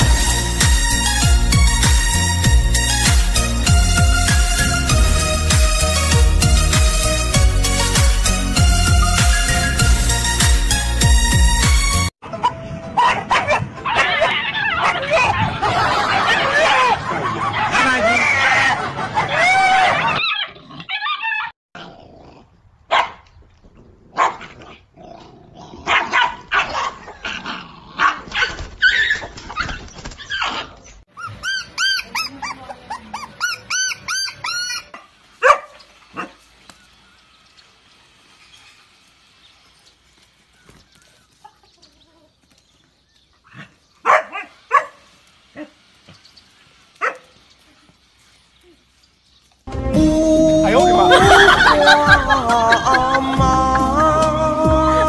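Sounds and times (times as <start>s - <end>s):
puppies yelping and barking: 12.2s - 21.6s, 28.0s - 37.0s.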